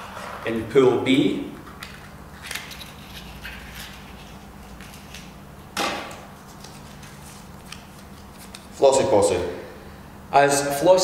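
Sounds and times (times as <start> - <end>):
paper rustling: 6.1 - 8.8.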